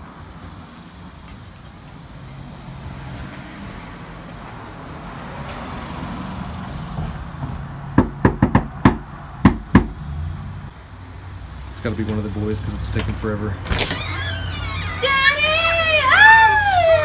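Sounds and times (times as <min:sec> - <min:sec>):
outdoor traffic hum: 0:00.0 - 0:17.0
knocks on a door: 0:08.0 - 0:10.0.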